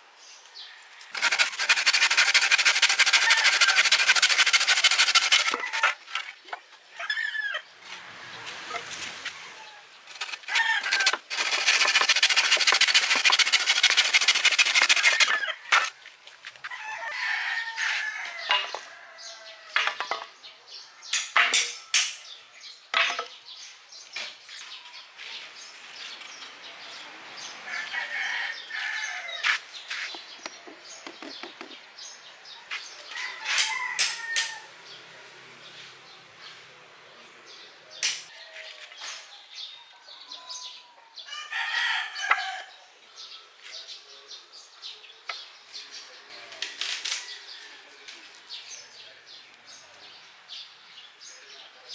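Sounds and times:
handsaw cutting wood: 1.1 - 6.2, 10.1 - 15.9
wooden pieces knocking: 1.1 - 6.6, 10.1 - 15.9
rooster crowing: 2.9 - 4.0, 16.6 - 19.8, 27.6 - 29.5, 32.7 - 34.8, 41.3 - 42.8.

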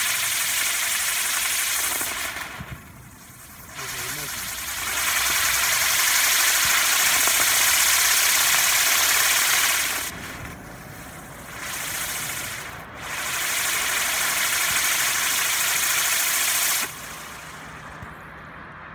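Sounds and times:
firework wheel hissing: 0.0 - 18.1.

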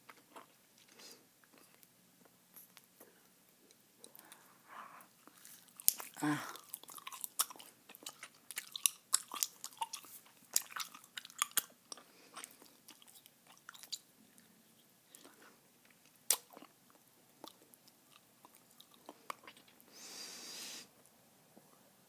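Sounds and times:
gum chewing: 5.2 - 19.9
gum clicks and snaps: 5.8 - 14.1, 15.1 - 17.6
hiss: 20.0 - 20.9.

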